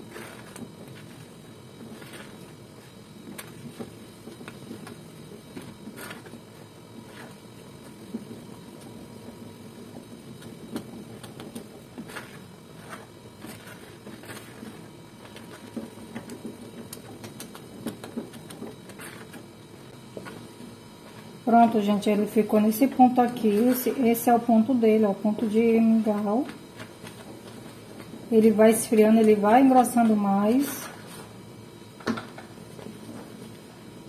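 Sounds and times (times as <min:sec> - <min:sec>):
spatula scraping a pot: 0:05.7 - 0:08.4, 0:10.5 - 0:21.4, 0:23.0 - 0:24.5.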